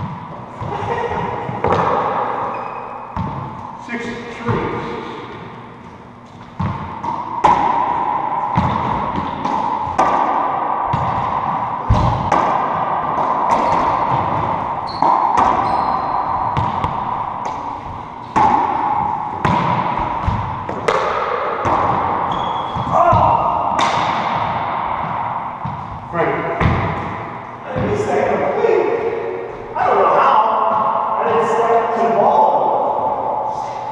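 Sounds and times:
ball hitting racquets and walls: 0.0 - 33.9
shoe squeaks on wood floor: 2.5 - 3.0, 15.6 - 16.1, 22.3 - 22.9.

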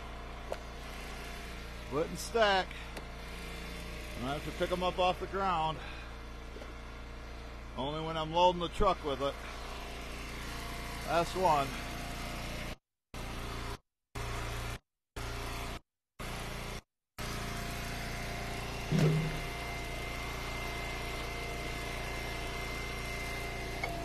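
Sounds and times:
heavy thud: 18.9 - 19.5
thin high whine: 18.9 - 19.6
gas engine idling: 18.9 - 19.7.

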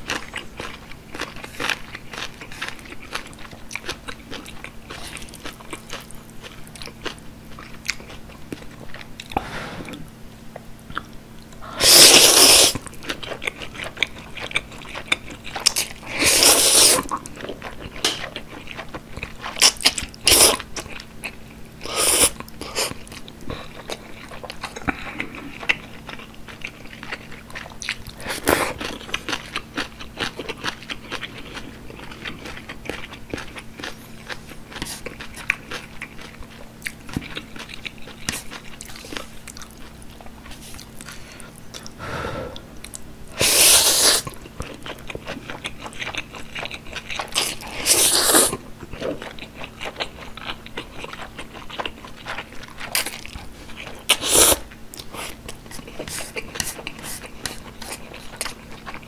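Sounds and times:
wet chewing and biting: 0.0 - 10.0, 10.6 - 42.0, 42.8 - 59.0
noodle slurps: 11.7 - 12.8, 16.1 - 17.1, 21.8 - 23.0, 43.4 - 44.3, 47.4 - 48.6, 54.1 - 54.6.

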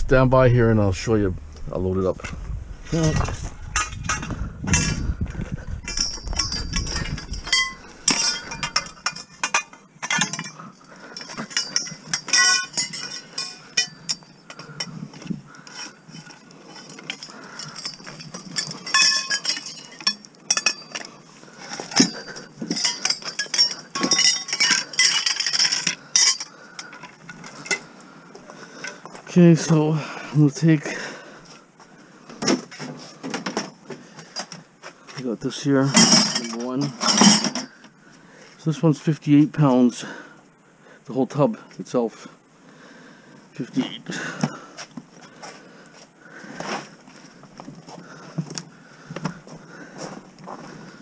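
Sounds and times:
copper pipes clinking together: 5.8 - 27.9.

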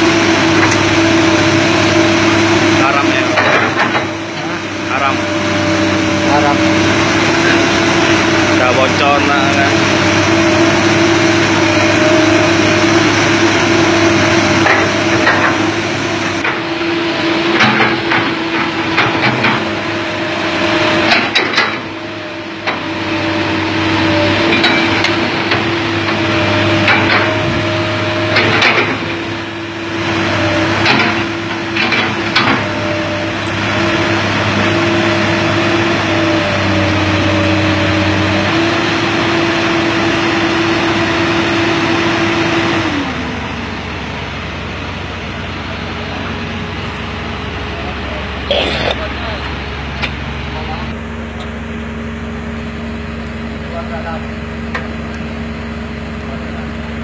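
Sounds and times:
excavator diesel engine running: 0.0 - 57.0
hydraulic whine: 0.0 - 57.0
metal clanks and knocks: 3.2 - 4.5, 14.6 - 15.7, 17.5 - 19.7, 21.0 - 21.9, 24.5 - 26.2, 26.8 - 27.5, 28.3 - 29.1.

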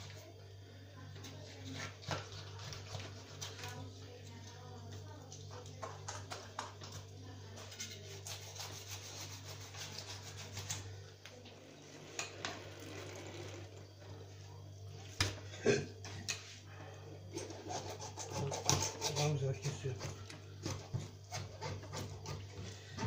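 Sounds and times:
steady low hum: 0.0 - 23.0
knife scraping fish on stone: 7.6 - 10.8, 17.4 - 22.4.

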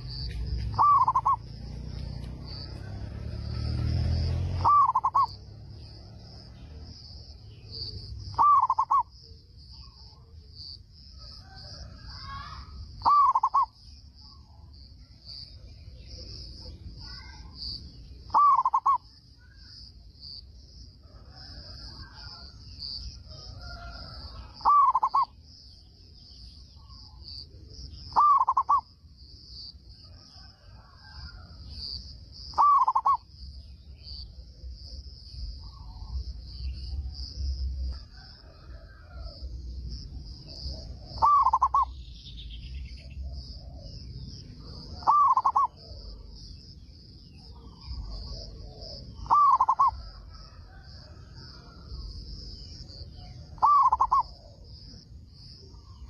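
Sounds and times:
dove cooing: 0.0 - 1.6, 4.5 - 5.4, 7.7 - 9.1, 11.2 - 13.7, 18.3 - 19.0, 23.3 - 25.4, 28.0 - 28.8, 32.5 - 33.2, 40.5 - 42.0, 43.0 - 46.2, 47.5 - 51.9, 53.2 - 54.9
high insect trill: 0.0 - 56.0.

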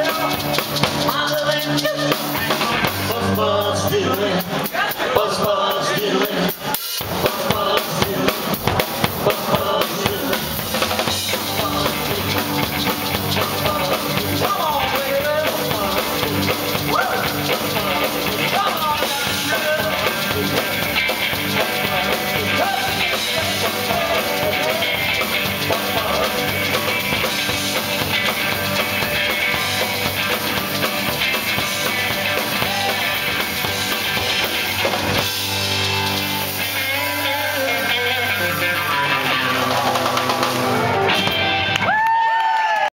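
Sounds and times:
drum kit: 0.0 - 42.8
electric guitar: 0.0 - 42.9
maraca shaking: 11.3 - 38.7.

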